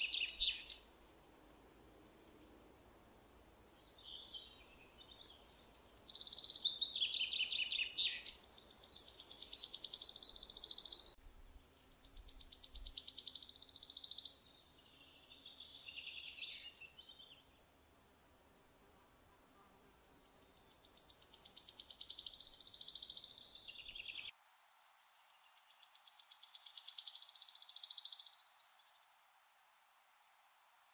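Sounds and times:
bird singing with trills: 0.0s - 1.4s, 4.0s - 14.4s, 20.3s - 24.3s, 25.4s - 28.8s.

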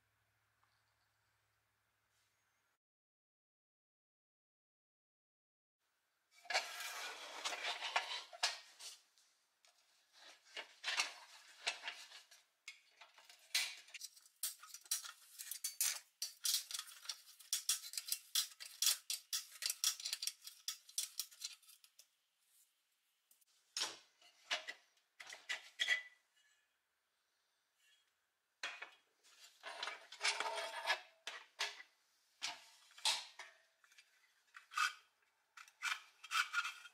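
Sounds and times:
screwdriver scraping steel: 14.0s - 22.0s.

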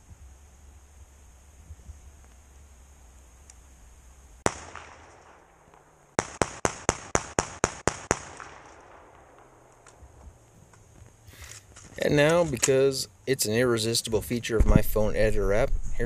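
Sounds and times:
shotgun shots: 4.4s - 9.7s.

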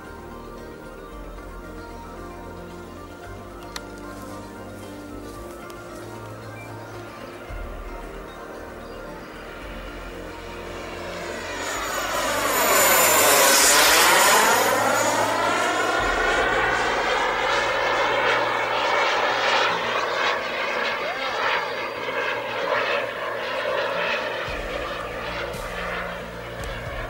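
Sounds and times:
model jet turbine engine whining: 0.0s - 27.0s
jet whooshing past: 9.2s - 27.0s.

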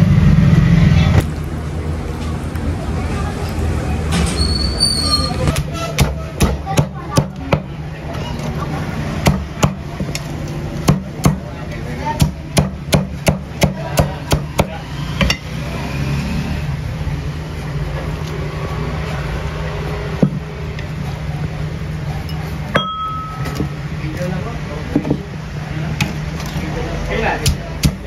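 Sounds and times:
knife chopping on wooden board: 5.5s - 7.7s.

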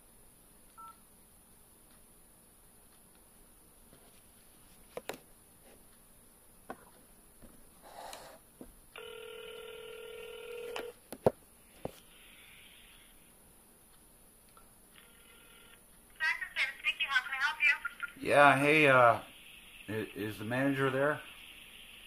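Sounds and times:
phone ringing tone: 9.0s - 11.0s, 15.0s - 15.8s.

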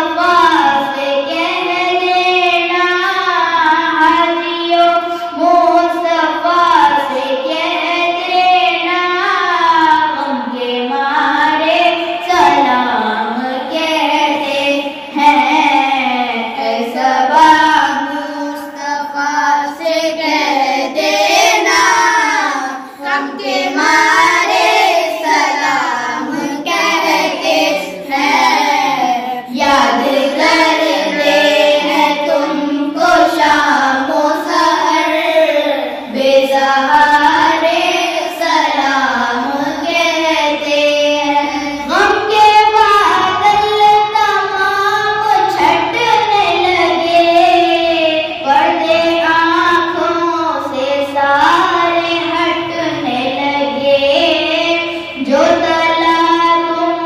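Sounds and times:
boy singing into microphone: 0.0s - 57.0s.

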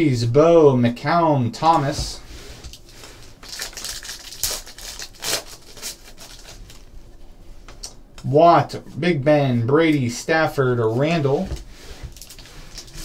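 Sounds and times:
foil wrapper crinkling and tearing: 2.6s - 6.9s, 12.1s - 13.0s.

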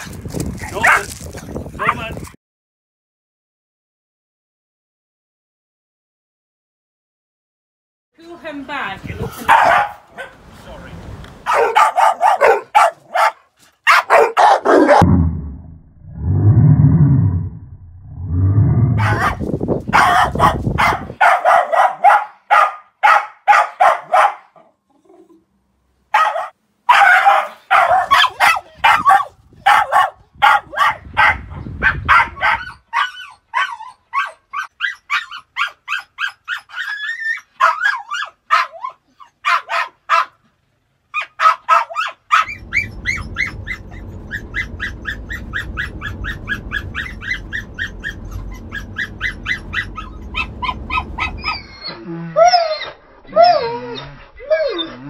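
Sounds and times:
dog barking: 0.8s - 1.1s, 9.4s - 10.4s, 11.4s - 15.0s, 19.0s - 24.7s, 26.1s - 36.8s, 37.6s - 40.4s, 41.1s - 51.7s
low steady rumble: 15.0s - 20.9s, 42.4s - 51.8s.

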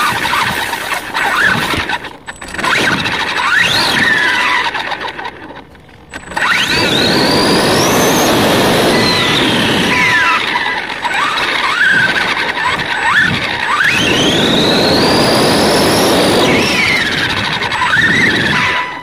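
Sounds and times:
toy motor whining: 0.0s - 19.0s
steady rushing noise: 6.2s - 19.0s.

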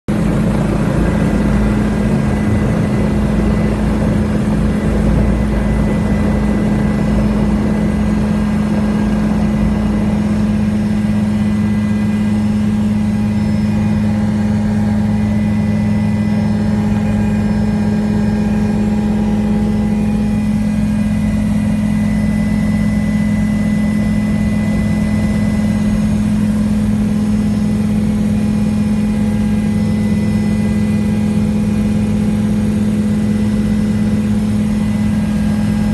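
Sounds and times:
heavy low rumble: 0.1s - 29.6s, 33.4s - 35.9s
helicopter turbine and rotor: 0.1s - 35.9s.

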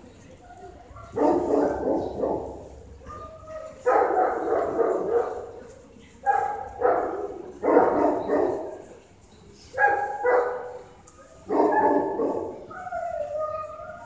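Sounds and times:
dog barking with echo: 1.0s - 5.5s, 6.3s - 8.8s, 9.8s - 10.8s, 11.4s - 12.7s.

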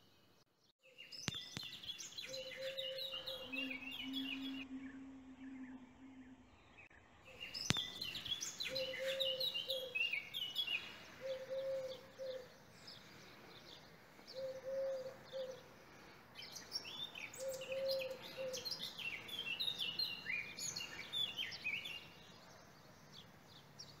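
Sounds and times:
songbirds chirping and twittering: 0.0s - 24.0s
low bird call: 1.2s - 13.1s, 14.3s - 15.7s, 16.4s - 22.1s.

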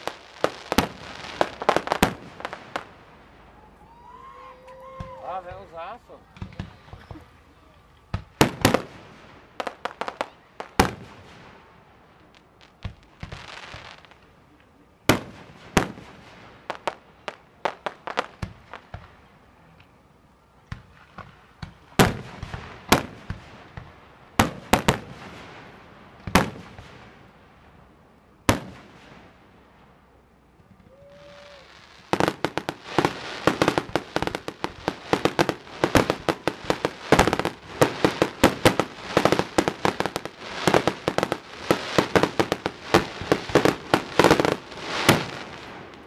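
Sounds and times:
fireworks hissing: 0.0s - 3.2s, 30.9s - 46.0s
fireworks bangs: 0.0s - 19.7s, 20.6s - 46.0s
fireworks pops: 6.3s - 7.3s, 12.7s - 20.0s, 20.6s - 25.4s, 30.6s - 46.0s.

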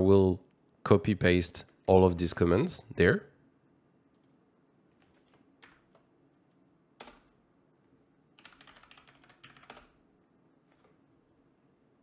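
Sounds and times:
keyboard typing: 4.1s - 6.1s, 7.0s - 7.4s, 8.4s - 10.0s.

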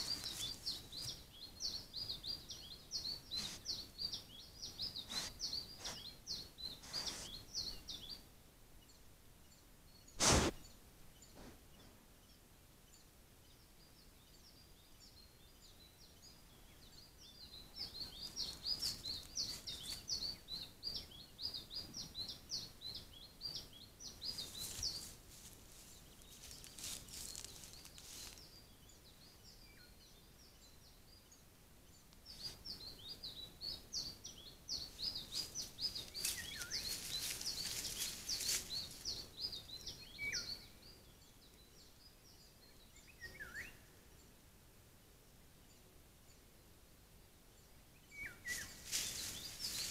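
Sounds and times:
rustling in tall grass: 0.0s - 1.2s, 5.0s - 6.1s, 6.8s - 7.4s, 10.2s - 10.6s, 24.2s - 28.6s, 34.9s - 39.4s, 48.5s - 49.9s
songbird chirping: 0.0s - 49.9s.

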